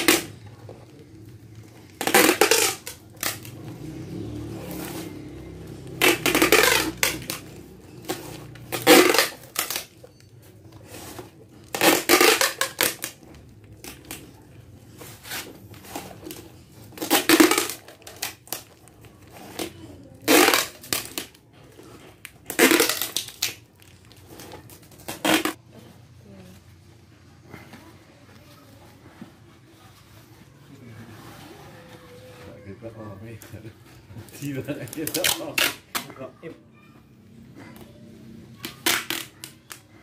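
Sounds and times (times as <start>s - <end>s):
packing tape ripping off roll: 0.0s - 10.1s, 10.8s - 25.6s, 34.2s - 36.1s, 38.6s - 40.0s.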